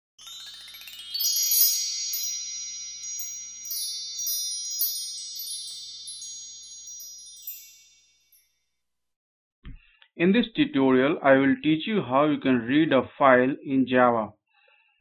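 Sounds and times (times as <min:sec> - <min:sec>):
shimmering chime notes: 0:00.2 - 0:08.6.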